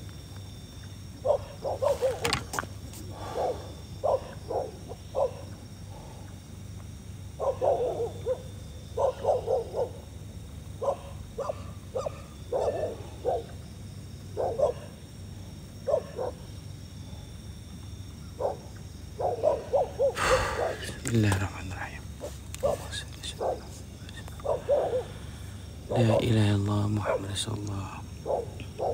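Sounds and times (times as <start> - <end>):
dog barking: 1.2 - 2.3, 3.2 - 5.6, 7.4 - 10.0, 10.8 - 13.6, 14.3 - 15.0, 15.8 - 16.5, 18.4 - 20.8, 22.2 - 23.8, 24.4 - 25.2, 27.0 - 27.3, 28.2 - 28.9.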